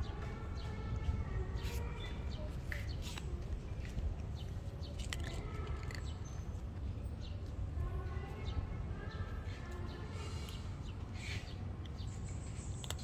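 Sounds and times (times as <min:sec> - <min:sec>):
cat crunching dry kibble: 0:02.7 - 0:06.9, 0:11.8 - 0:13.0.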